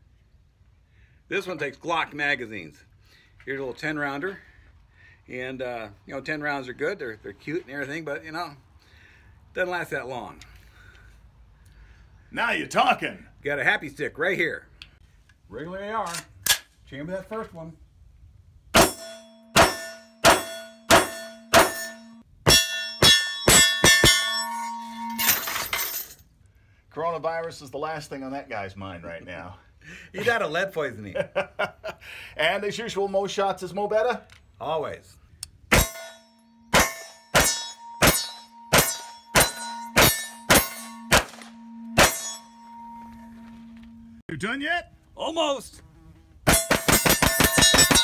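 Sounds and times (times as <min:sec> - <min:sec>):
steel target ringing: 0:18.8 - 0:26.0, 0:35.7 - 0:44.2, 0:46.5 - 0:48.0
pistol shots: 0:36.7 - 0:42.3.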